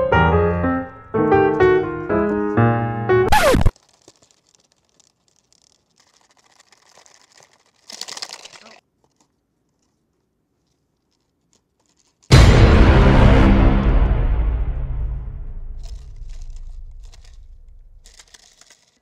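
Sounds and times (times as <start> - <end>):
piano music: 0.0 - 3.7, 12.3 - 18.0
paper crinkling: 3.3 - 12.3, 15.6 - 19.0
faint scratchy rustling: 3.7 - 12.3
dramatic music with low drum: 12.3 - 17.8.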